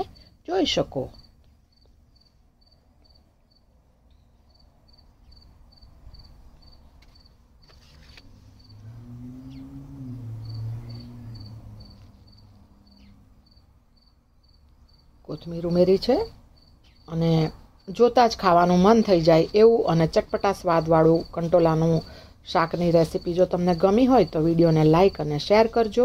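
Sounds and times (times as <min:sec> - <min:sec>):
cricket chirping: 0:01.1 - 0:07.8, 0:08.6 - 0:15.8, 0:16.6 - 0:18.0.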